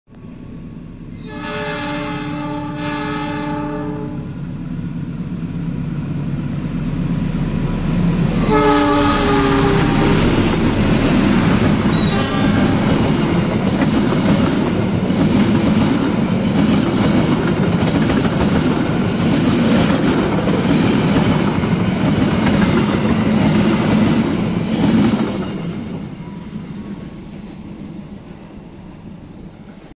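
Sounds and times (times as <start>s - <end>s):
train rushing past: 0.2s - 29.9s
train horn blasts: 1.2s - 4.4s, 8.4s - 10.6s, 11.8s - 13.2s
wheels clacking over rail joints: 9.3s - 25.5s.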